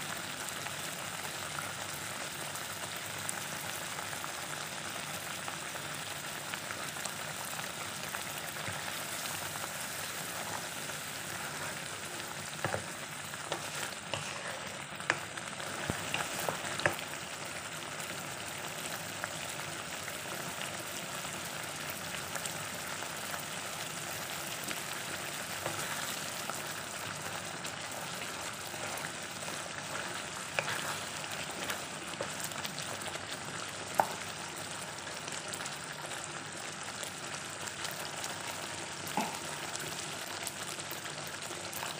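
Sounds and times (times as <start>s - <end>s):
sauce bubbling and sizzling in a wok: 0.0s - 41.9s
wooden spatula stirring: 8.4s - 17.2s, 25.2s - 34.3s.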